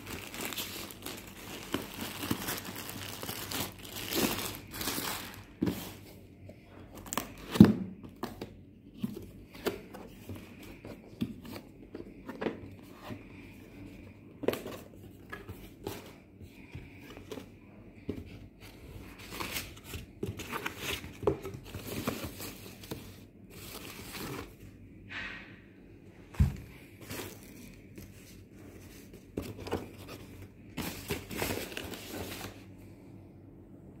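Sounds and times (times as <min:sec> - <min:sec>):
plastic packaging rustling: 0:00.0 - 0:06.2, 0:18.2 - 0:24.6, 0:26.4 - 0:32.8.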